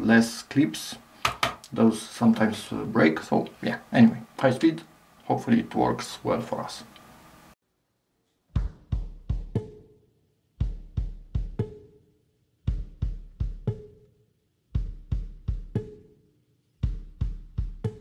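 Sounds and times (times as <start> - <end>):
drum beat of quick sharp strikes: 8.6 - 10.0, 10.6 - 11.9, 12.7 - 14.0, 14.8 - 16.1, 16.8 - 18.0.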